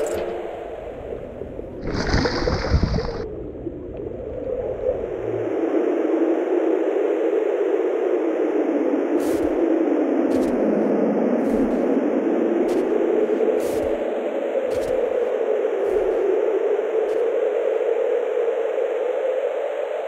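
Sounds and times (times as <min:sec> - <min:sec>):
blizzard wind rushing: 0:00.0 - 0:20.0
faint soft pulses: 0:03.1 - 0:19.0.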